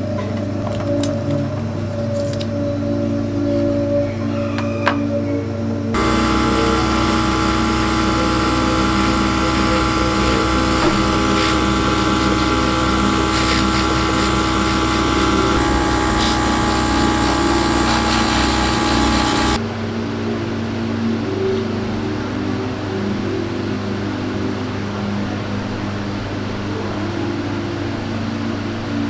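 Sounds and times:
airbrush hissing: 6.0s - 19.6s
compressor humming: 6.0s - 19.6s.

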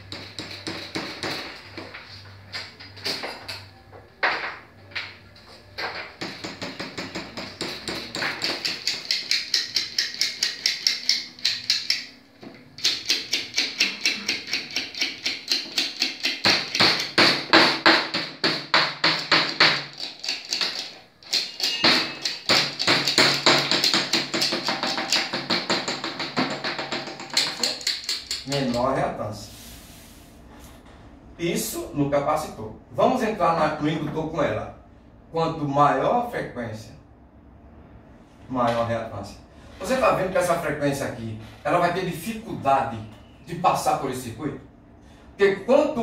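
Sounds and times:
small hammer tapping metal: 5.8s - 28.8s.

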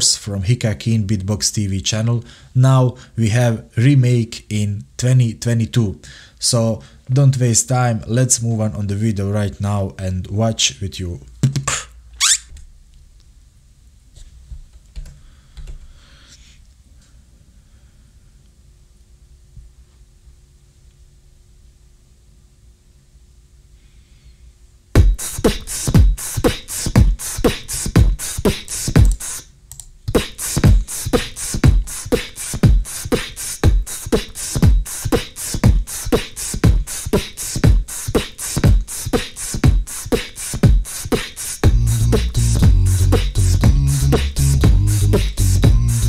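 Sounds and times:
beatbox kick drums: 11.4s - 12.0s, 25.0s - 46.0s
beatbox hi-hat clicks: 11.4s - 12.5s, 25.0s - 46.0s
deep looped bass line: 25.0s - 29.4s, 30.1s - 46.0s.

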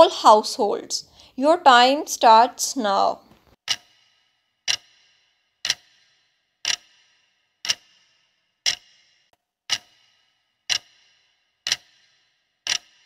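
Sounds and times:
sharp clock ticks: 3.6s - 13.0s.

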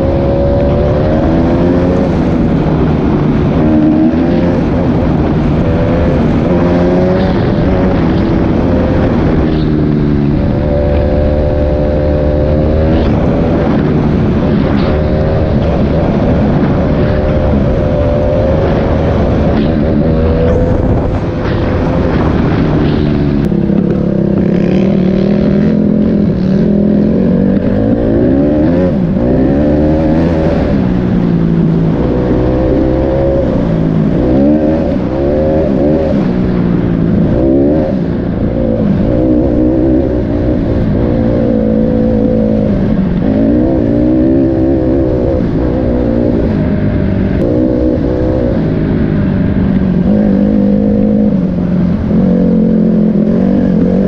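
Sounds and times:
dirt bike engine revving: 0.0s - 54.0s.

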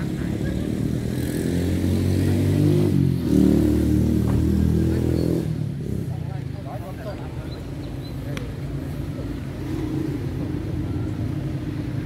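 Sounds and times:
vehicle engine revving: 0.0s - 6.2s.

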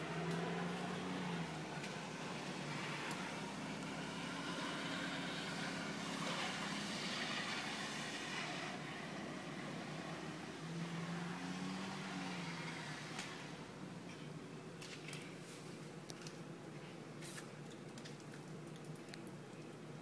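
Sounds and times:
tyre hiss on wet street: 0.0s - 13.7s
car engine hum: 0.0s - 14.0s.

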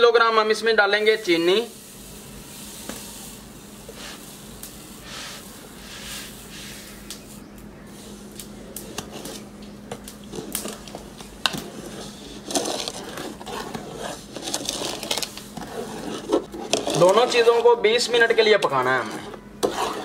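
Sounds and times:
metal spoon scraping pot: 11.7s - 20.0s.

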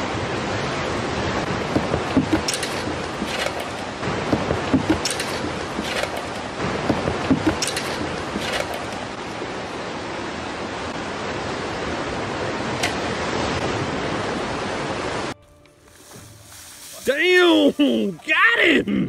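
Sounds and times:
waves on rocky shore: 0.0s - 15.4s, 16.1s - 18.8s
sharp clicks: 2.1s - 3.9s.

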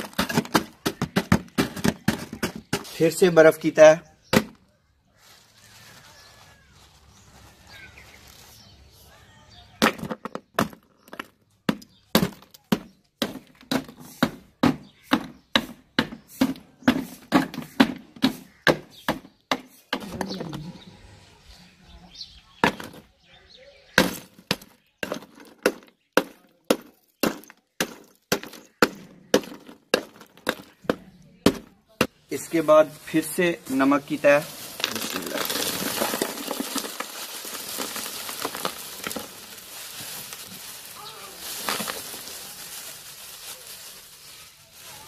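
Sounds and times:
wooden pole pounding ice in metal tin: 0.0s - 3.2s, 9.8s - 20.2s, 24.0s - 31.7s, 33.9s - 40.3s.

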